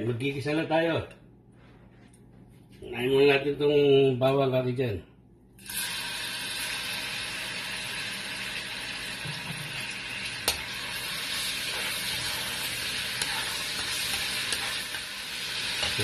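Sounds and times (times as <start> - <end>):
garlic sizzling in oil: 5.6 - 16.0
spatula stirring in wok: 10.4 - 16.0.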